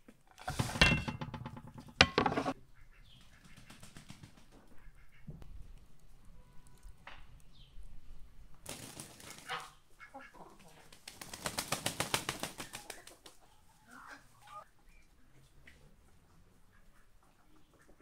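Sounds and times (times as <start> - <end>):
duck flapping wings: 3.3 - 4.6, 8.6 - 9.7, 10.8 - 13.4.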